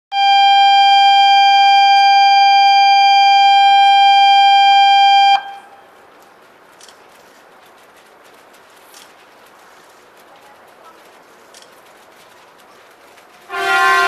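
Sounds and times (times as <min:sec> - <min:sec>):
faint clicks: 0:06.1 - 0:13.5.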